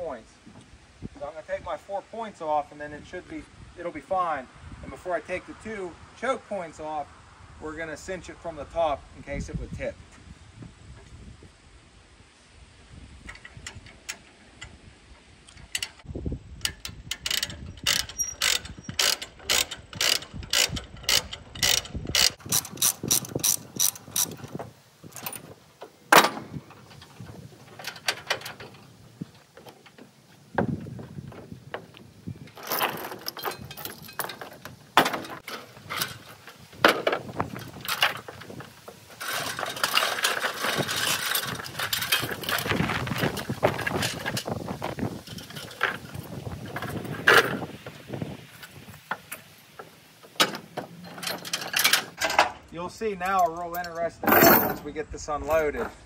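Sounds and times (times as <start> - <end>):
rattling: 15.5 - 48.0, 48.6 - 54.9
ratchet strap pawl clicking: 16.6 - 25.4.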